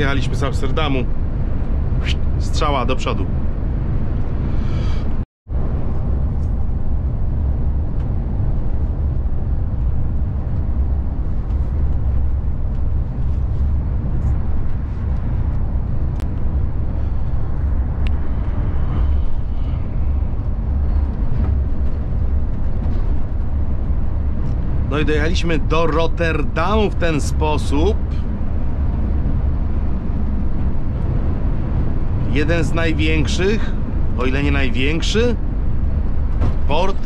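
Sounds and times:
coach engine and road noise drone: 0.0s - 37.0s.

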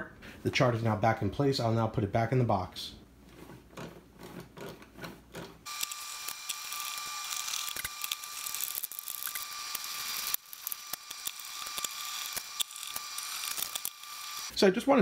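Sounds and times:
screwdriver turning screw in metal: 4.6s - 14.5s.

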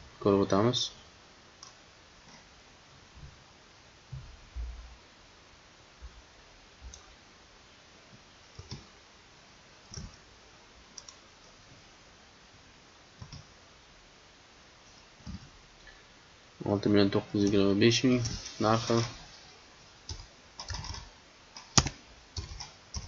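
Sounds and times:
steady hiss: 0.0s - 23.0s
computer mouse clicks: 1.6s - 2.4s, 8.6s - 8.9s, 9.9s - 10.2s, 11.0s - 11.2s, 13.2s - 13.5s, 20.1s - 23.0s.

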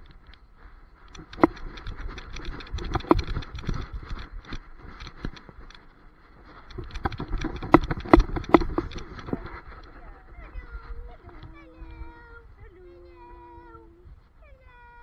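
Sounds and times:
camera handling knocks and rattles: 1.1s - 9.9s.

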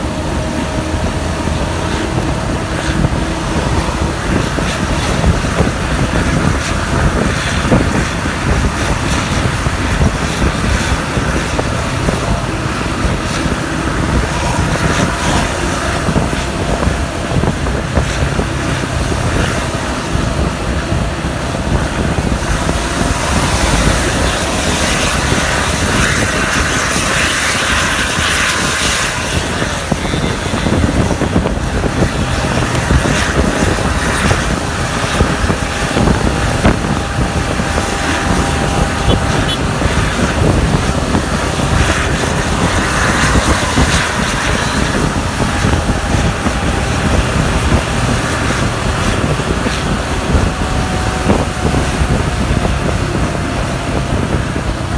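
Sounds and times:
bus engine and exhaust running: 0.0s - 54.9s
road and wind noise: 0.0s - 54.9s.

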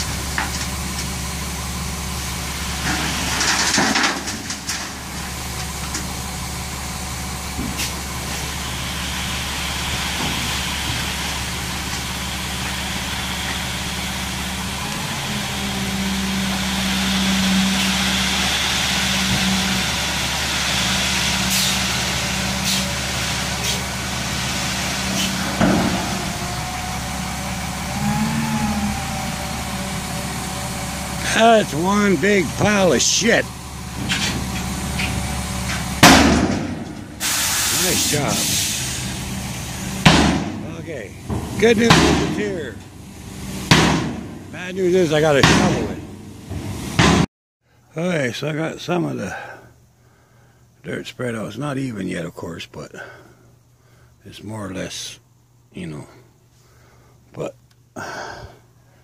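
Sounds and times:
diesel engine running: 0.0s - 47.3s
dirt sliding out with a hiss: 7.7s - 33.0s, 36.6s - 40.0s.

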